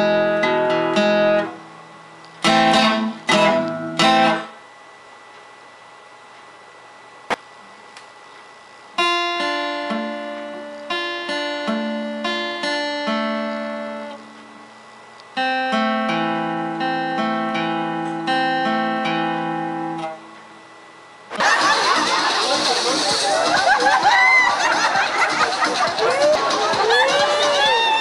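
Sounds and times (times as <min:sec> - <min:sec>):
plucked notes music: 0:02.4 - 0:04.5.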